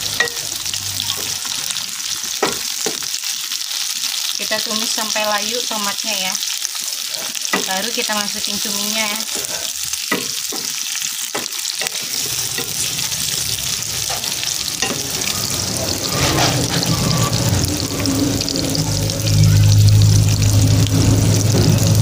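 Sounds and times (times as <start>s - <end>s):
vegetables sizzling in hot oil: 0.0s - 22.0s
spatula scraping a wok: 9.2s - 10.8s, 11.5s - 22.0s.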